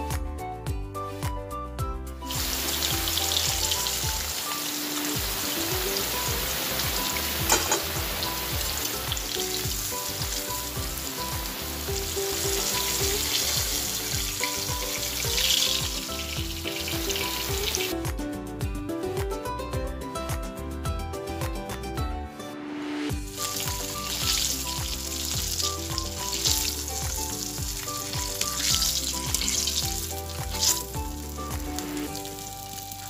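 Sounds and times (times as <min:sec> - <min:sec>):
music: 0:00.0 - 0:33.0
fish sizzling in oil: 0:02.3 - 0:18.0, 0:23.1 - 0:33.0.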